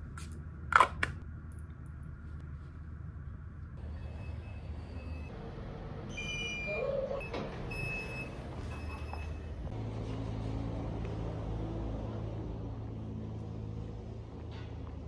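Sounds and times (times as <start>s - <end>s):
lift beeps: 6.1s - 9.5s
lift doors sliding open: 6.1s - 10.8s.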